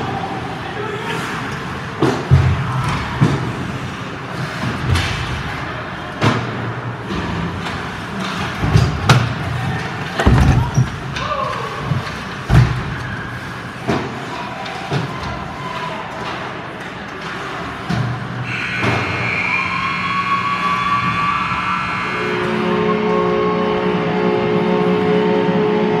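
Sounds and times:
arena noise: 0.0s - 26.0s
puck and sticks hitting boards: 2.0s - 3.6s, 6.2s - 13.2s, 13.8s - 18.2s.

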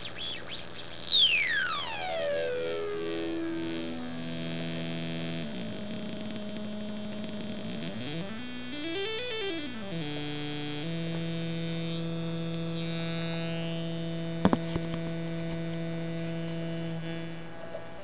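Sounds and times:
granular synth tone: 0.0s - 18.0s
sharp clicks: 4.6s - 11.4s.

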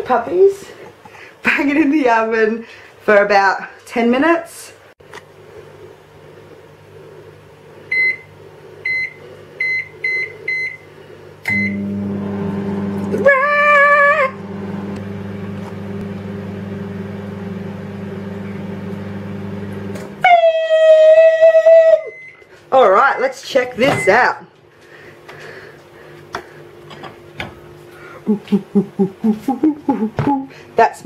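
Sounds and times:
microwave oven humming: 5.1s - 30.9s
microwave keypad beeps: 7.9s - 10.9s, 11.5s - 11.8s, 23.8s - 24.4s
microwave end tone: 7.9s - 22.4s.

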